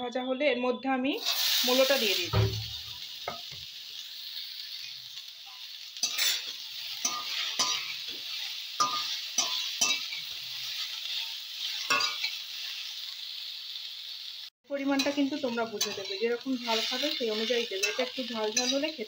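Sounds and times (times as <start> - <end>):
food sizzling in hot oil: 1.1 - 19.0
metal spatula scraping pan: 5.5 - 12.8, 15.0 - 19.0.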